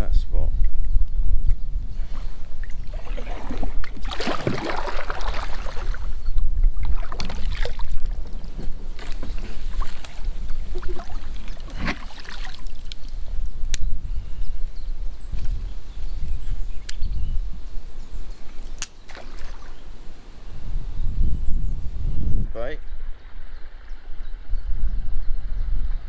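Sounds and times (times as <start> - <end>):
low wind rumble on microphone: 0.0 - 26.0
paddle strokes splashing water: 2.6 - 6.2, 6.8 - 13.1.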